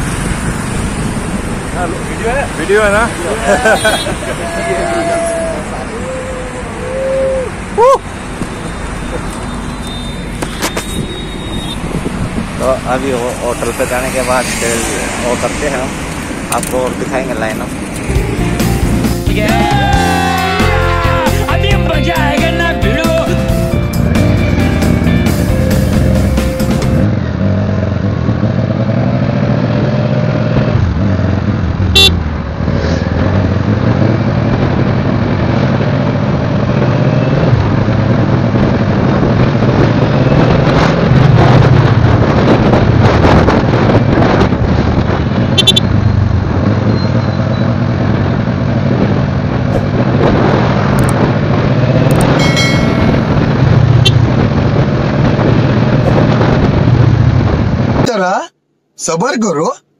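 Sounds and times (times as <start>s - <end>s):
wind and road noise: 0.0s - 59.9s
short horn beeps: 9.4s - 11.9s, 45.6s - 45.9s.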